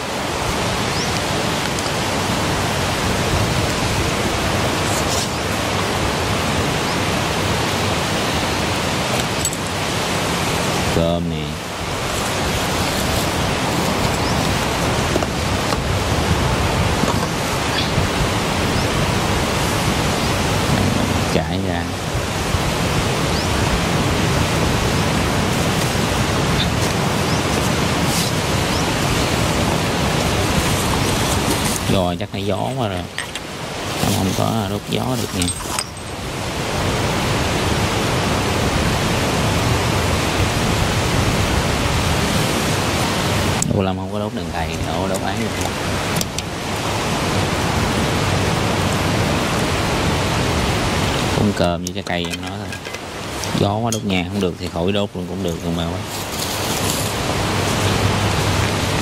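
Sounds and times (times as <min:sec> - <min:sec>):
strong wind buffeting microphone: 0:00.0 - 0:59.0
faint rustles: 0:55.7 - 0:59.0.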